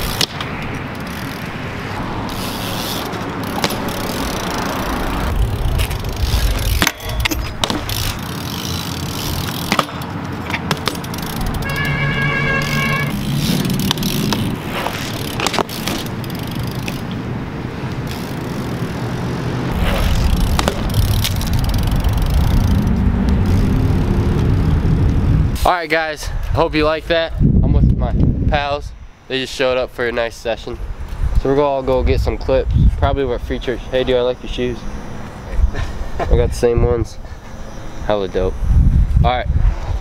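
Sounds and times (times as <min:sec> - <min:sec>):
bike clicks and knocks: 0:00.0 - 0:25.2
bike tyres rolling on concrete: 0:00.0 - 0:27.0
tyre squeal: 0:02.3 - 0:09.7, 0:11.0 - 0:17.0.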